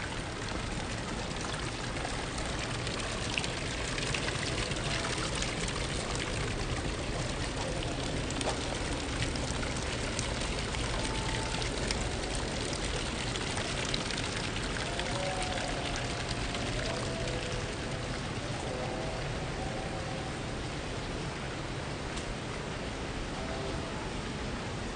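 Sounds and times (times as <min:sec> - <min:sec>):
fountain water splashing: 0:00.0 - 0:24.9.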